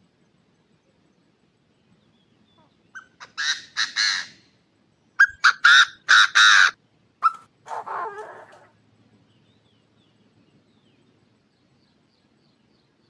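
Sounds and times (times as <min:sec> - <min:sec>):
francolin calling: 0:02.1 - 0:08.8.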